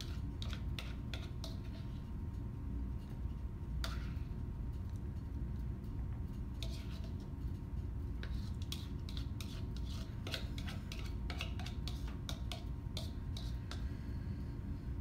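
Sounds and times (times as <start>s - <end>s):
spoon scraping plastic bowl: 0.0s - 2.0s, 6.6s - 7.2s, 8.2s - 13.8s
low room hum: 0.0s - 15.0s.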